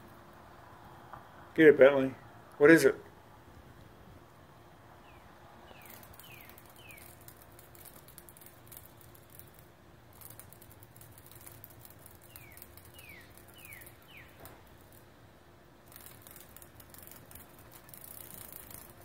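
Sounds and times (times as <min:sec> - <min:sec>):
cicada buzzing: 0:05.0 - 0:15.2, 0:15.9 - 0:19.0.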